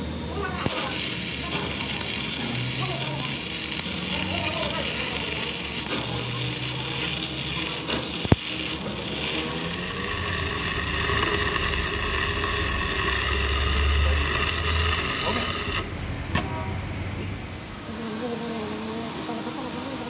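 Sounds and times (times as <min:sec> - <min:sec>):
gas torch flame hissing: 0:00.5 - 0:16.1
arc welding crackling: 0:00.5 - 0:16.5.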